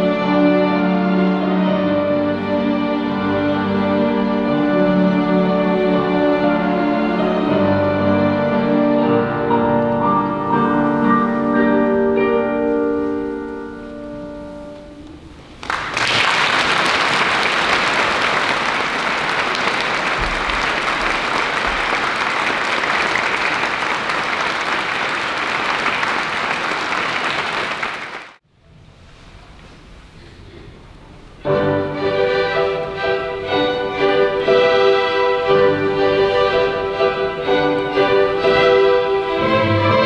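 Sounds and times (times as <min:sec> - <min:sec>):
string ensemble chord: 0:00.0 - 0:15.4, 0:31.4 - 0:40.0
audience applause: 0:15.6 - 0:28.4.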